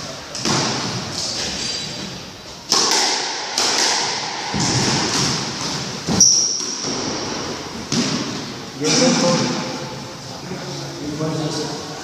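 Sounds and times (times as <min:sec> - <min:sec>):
squash ball hits: 0:00.4 - 0:01.2, 0:02.7 - 0:09.7
high shoe squeak: 0:06.1 - 0:06.8.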